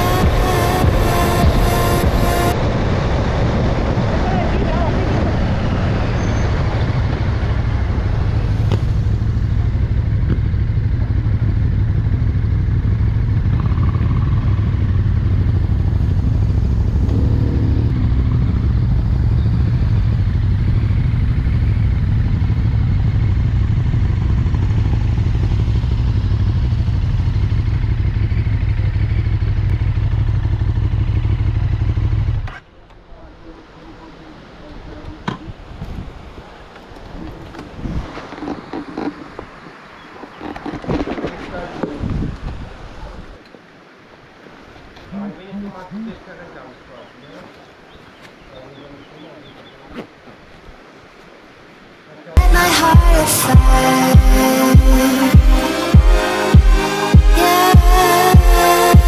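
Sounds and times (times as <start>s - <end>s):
motorcycle engine cruising: 0.0s - 2.6s, 4.2s - 34.0s, 52.4s - 59.0s
wind rush: 0.0s - 9.7s, 35.4s - 39.7s, 40.7s - 43.4s.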